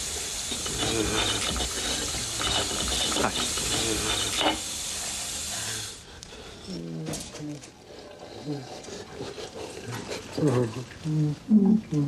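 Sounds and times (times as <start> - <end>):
hand dryer blowing: 0.0 - 6.0.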